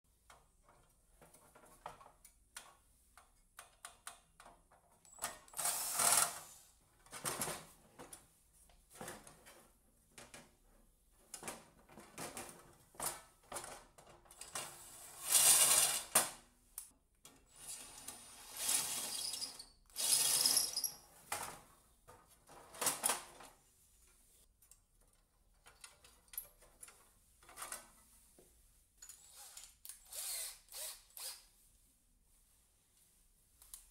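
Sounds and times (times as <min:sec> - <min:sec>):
cordless drill driving screws: 0:05.5 - 0:06.4, 0:18.5 - 0:20.9, 0:29.2 - 0:31.5.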